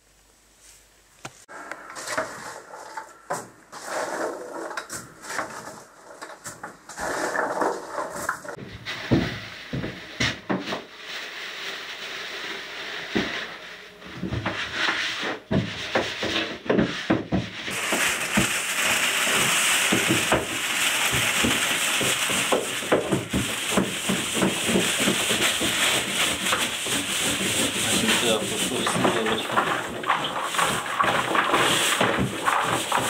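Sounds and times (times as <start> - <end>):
hands mixing filling in plastic basin: 14.2 - 33.0
plastic bags rustling: 17.3 - 33.0.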